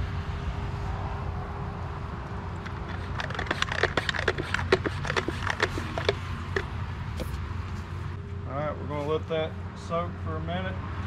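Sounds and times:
sharp ticks and taps: 2.6 - 6.7.

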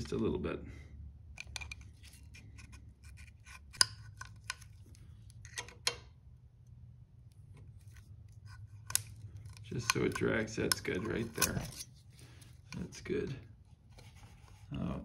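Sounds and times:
metal feeler gauge scraping: 8.0 - 12.9.

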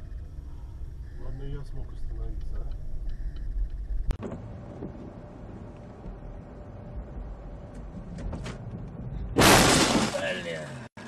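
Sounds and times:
road and engine noise inside car: 0.0 - 9.4
loud crash on windshield: 9.4 - 10.4.

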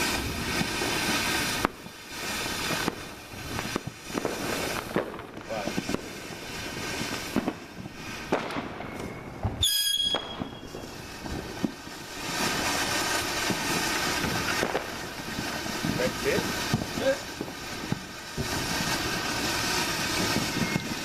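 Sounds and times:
firework hissing crackle: 0.0 - 21.0
firework sharp pops: 0.0 - 21.0
brief high whistle: 8.9 - 10.7, 20.5 - 21.0.

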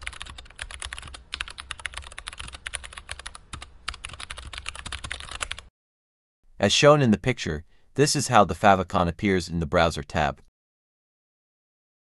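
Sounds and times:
keyboard typing: 0.0 - 5.7.

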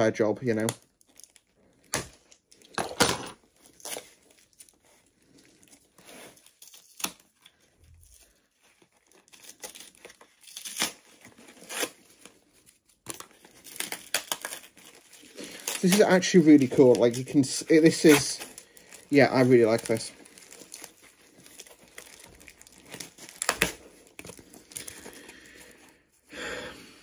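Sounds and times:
packaging tearing and crinkling: 0.6 - 2.7, 3.4 - 25.8.

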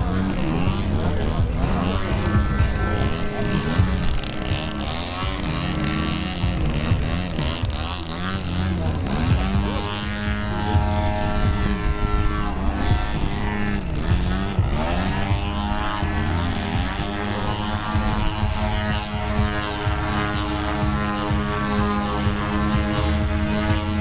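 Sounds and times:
model airplane engine and propeller: 0.0 - 24.0.

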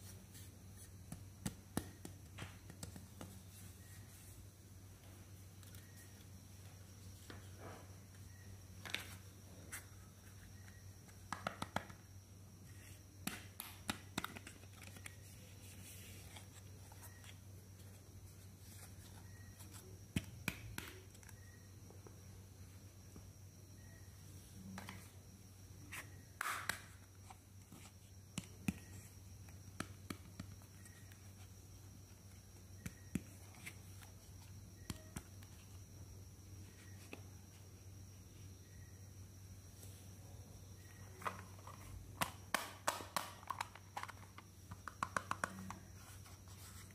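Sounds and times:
faint low hum: 0.0 - 46.9
plastic compacts clicking and tapping: 11.1 - 12.0, 41.2 - 45.8.

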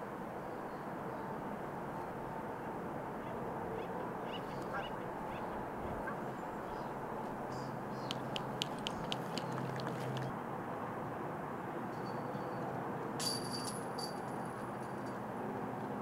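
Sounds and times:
sharp clicking calls: 3.2 - 10.3
short bird calls: 3.2 - 10.3.

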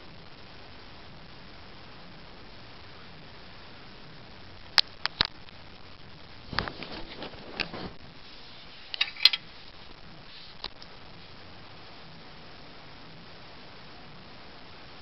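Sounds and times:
duvet rustling: 6.4 - 10.6.

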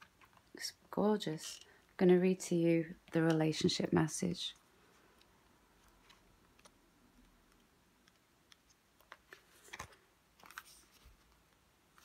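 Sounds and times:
faint clicks and taps: 4.6 - 12.0.

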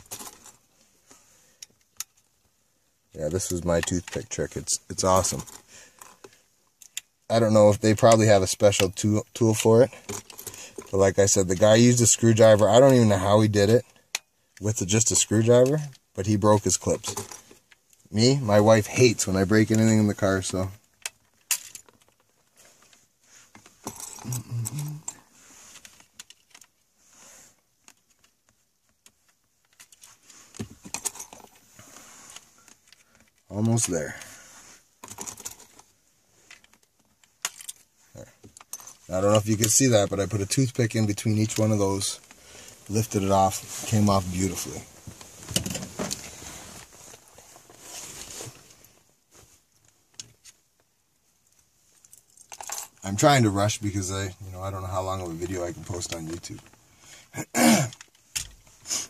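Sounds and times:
plastic and sleeves rustling: 0.0 - 57.2
plastic clicks and rattles: 35.0 - 39.8.

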